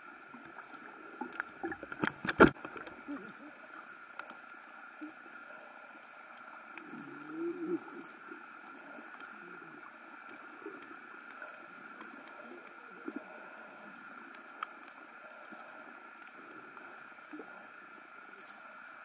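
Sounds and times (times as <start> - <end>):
underwater hiss: 2.6 - 19.0
faint clicks: 3.8 - 13.3, 14.2 - 18.9.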